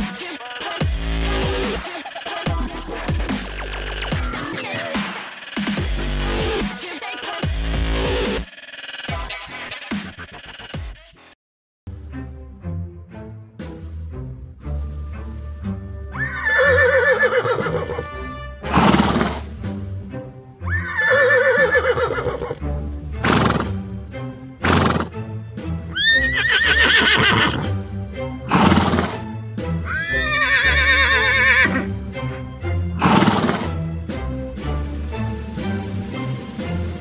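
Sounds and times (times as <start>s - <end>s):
background music: 0.0s - 37.0s
horse whinnies: 16.1s - 18.0s, 18.7s - 19.5s, 20.7s - 22.6s, 24.6s - 25.1s, 25.9s - 27.7s, 28.5s - 29.2s, 29.8s - 31.9s, 33.0s - 33.7s.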